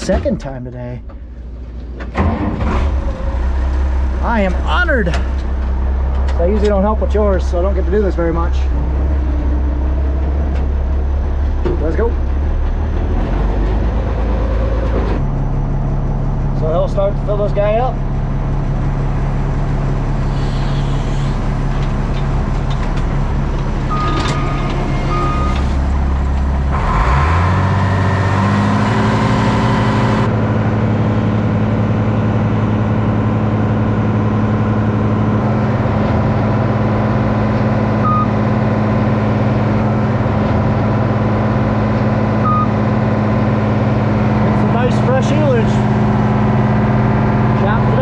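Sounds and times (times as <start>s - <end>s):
diesel tractor engine running: 0.0s - 48.0s
short high beeps: 42.4s - 42.7s.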